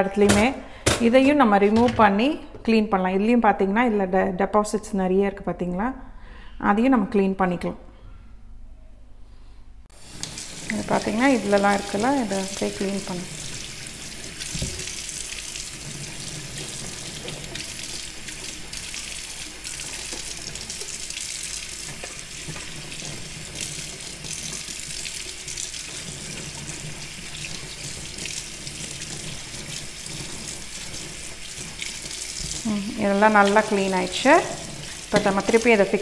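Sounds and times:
tap water splashing on metal filter: 0:14.4 - 0:15.0, 0:34.8 - 0:35.6.

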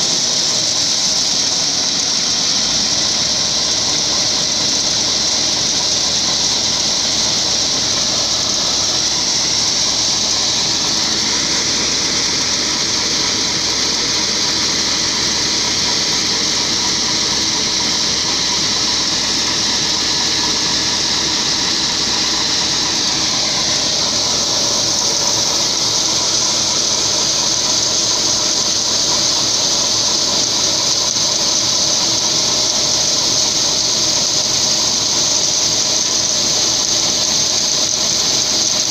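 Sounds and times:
engine and auger drone: 0:00.0 - 0:38.9
hiss of grain streaming: 0:00.0 - 0:38.9.

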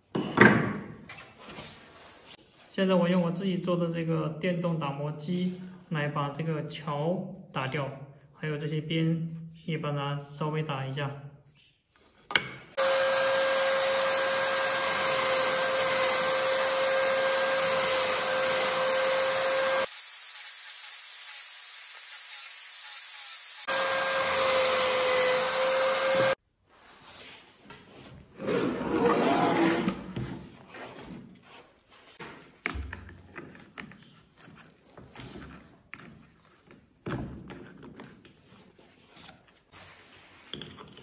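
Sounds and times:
electric sander whining: 0:12.8 - 0:26.4
handling and rubbing: 0:26.6 - 0:37.0, 0:37.6 - 0:41.0.

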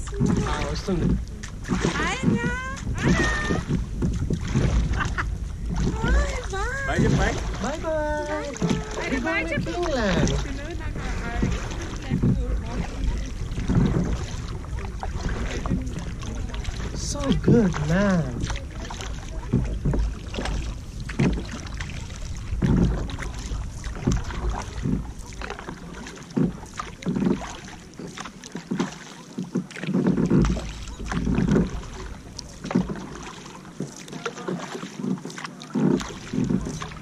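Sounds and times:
wind rumble on microphone: 0:00.0 - 0:25.6
kayak paddle splashing: 0:00.0 - 0:37.0
water lapping against hull: 0:00.0 - 0:37.0.

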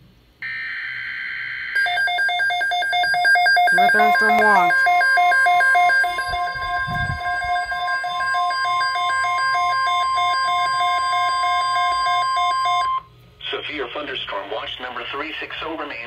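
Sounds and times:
steady high warning tone: 0:00.4 - 0:13.1
rapid pulsing beeps: 0:01.7 - 0:13.0.

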